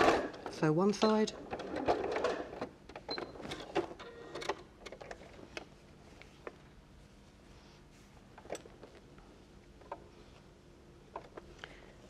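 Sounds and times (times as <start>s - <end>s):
fabric rustling: 5.3s - 10.6s.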